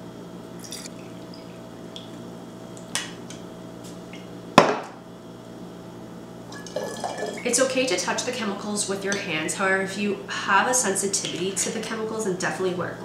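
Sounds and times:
water trickling into glass: 0:00.6 - 0:02.1.

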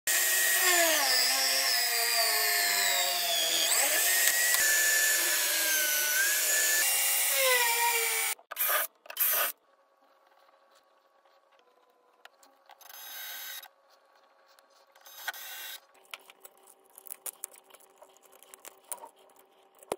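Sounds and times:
drill boring into wood: 0:00.1 - 0:08.4, 0:15.1 - 0:15.8.

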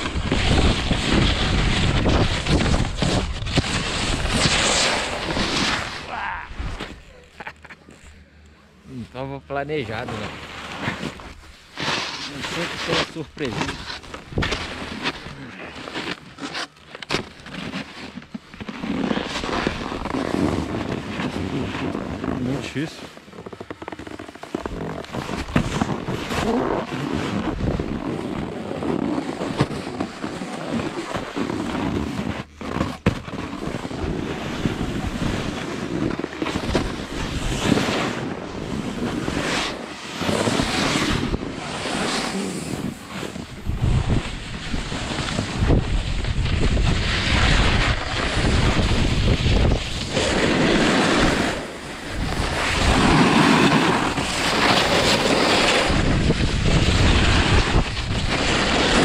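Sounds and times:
snowboard edges scraping snow: 0:00.0 - 0:08.0, 0:08.9 - 0:59.0
wind buffeting microphone: 0:42.9 - 0:50.4, 0:55.8 - 0:58.4.

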